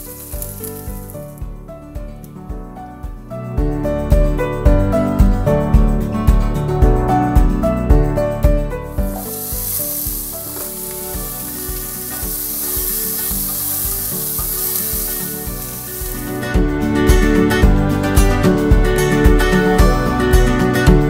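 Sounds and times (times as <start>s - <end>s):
vegetables sizzling in pan: 0.0s - 1.4s, 8.9s - 16.6s
acoustic guitar music: 0.0s - 21.0s
spatula stirring in pan: 9.0s - 16.4s.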